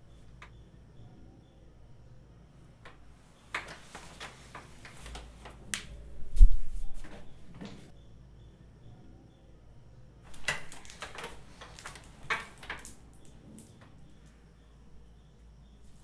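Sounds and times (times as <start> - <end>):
bedding rustling: 3.2 - 7.9.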